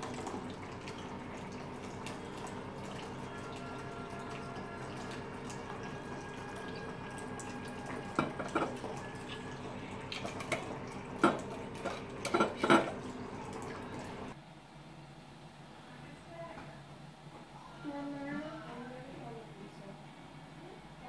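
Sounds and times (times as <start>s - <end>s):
liquid pouring into plastic cup: 0.0s - 14.4s
steady background hum: 0.0s - 21.0s.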